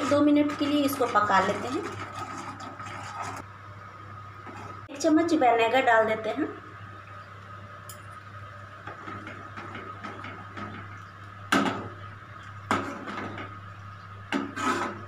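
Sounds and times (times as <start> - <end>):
ladle scraping a pan: 14.4 - 15.0.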